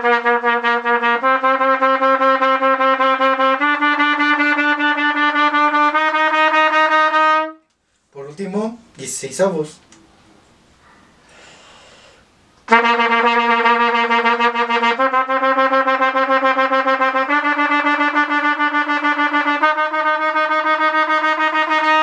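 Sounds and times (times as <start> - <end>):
trumpet playing rapid repeated notes: 0.0 - 7.7, 12.7 - 22.0.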